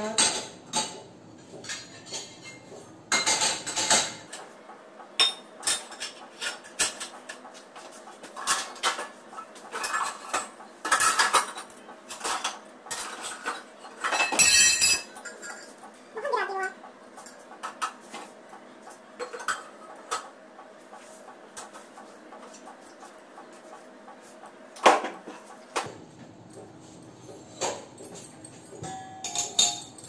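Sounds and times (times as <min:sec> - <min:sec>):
steel dishes clinking and clattering: 0:00.0 - 0:04.4, 0:05.1 - 0:15.9, 0:27.2 - 0:30.0.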